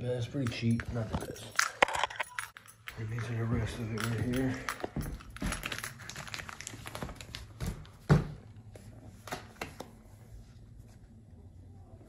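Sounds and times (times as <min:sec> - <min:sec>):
plastic wrap crinkling: 0:05.4 - 0:07.9.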